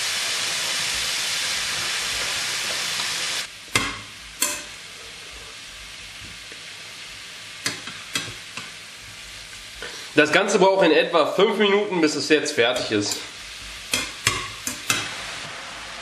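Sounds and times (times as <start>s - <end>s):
meat sizzling in a frying pan: 0.0s - 16.0s
metal tongs clicking on pan: 3.7s - 4.7s, 7.6s - 8.7s, 13.9s - 15.1s.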